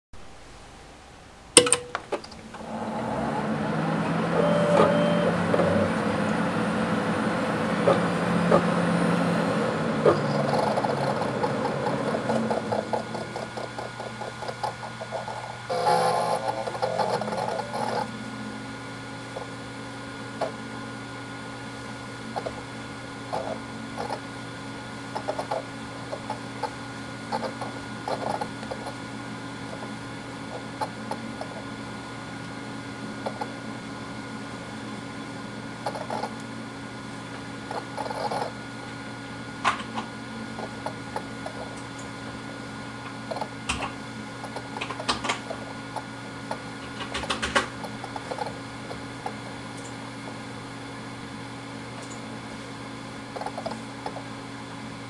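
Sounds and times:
hard drive hum: 0:00.2 - 0:55.0
rising tone: 0:02.5 - 0:12.9
hard drive head-seek clicks: 0:43.0 - 0:50.0.

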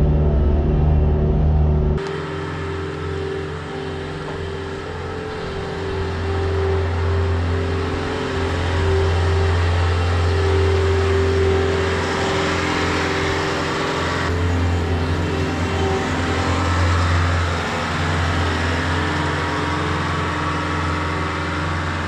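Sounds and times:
diesel engine running: 0:00.0 - 0:22.0.

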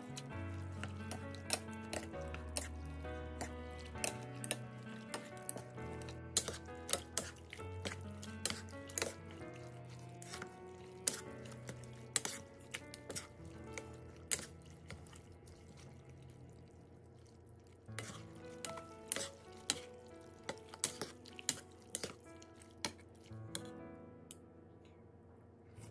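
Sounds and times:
spoon and chopsticks clinking bowl: 0:00.0 - 0:15.0
soft background music: 0:00.0 - 0:16.3, 0:17.9 - 0:25.2.

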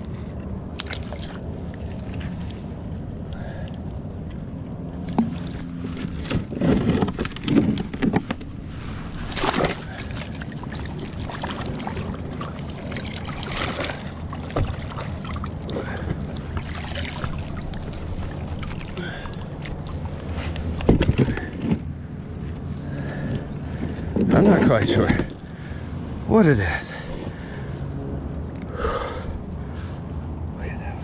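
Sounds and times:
water splashing against kayak: 0:05.0 - 0:21.5.

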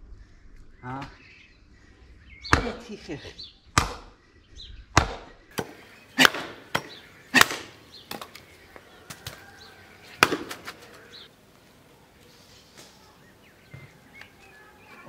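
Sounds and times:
hatchet chopping wood: 0:02.5 - 0:02.8, 0:03.8 - 0:04.2, 0:05.0 - 0:08.5, 0:10.2 - 0:10.8.

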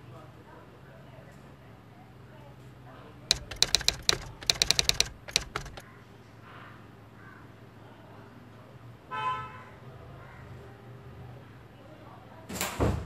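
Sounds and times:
keyboard typing clicks: 0:03.3 - 0:05.8.

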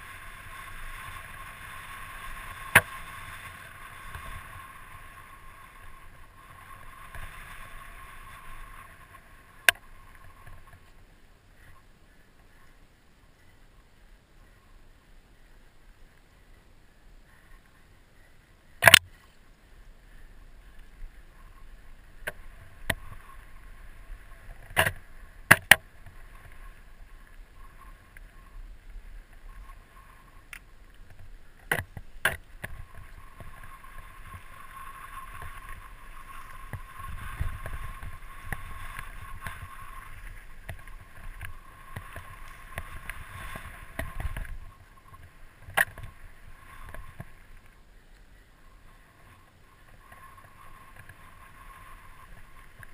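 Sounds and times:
wind noise: 0:00.0 - 0:12.7, 0:19.9 - 0:52.9
tyre and trail rumble: 0:20.2 - 0:47.9.

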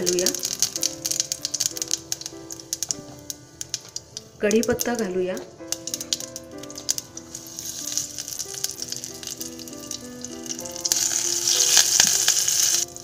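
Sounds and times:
leaves sizzling in hot oil: 0:00.0 - 0:13.0.

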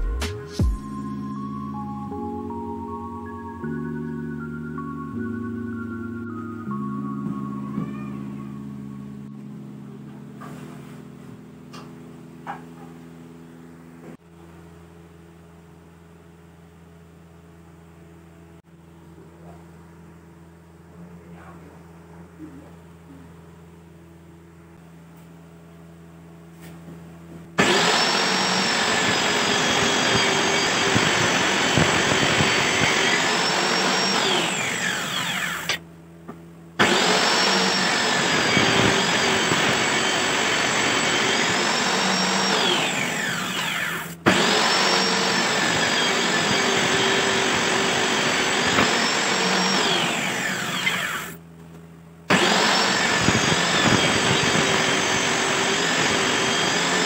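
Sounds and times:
table saw cutting wood: 0:27.6 - 0:35.8, 0:36.8 - 0:51.4, 0:52.3 - 0:57.0.

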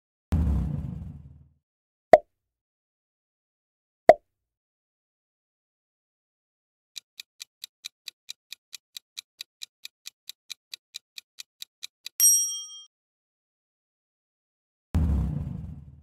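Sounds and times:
clock-like timer ticks: 0:07.0 - 0:12.4
bell-like ding: 0:12.2 - 0:12.9.

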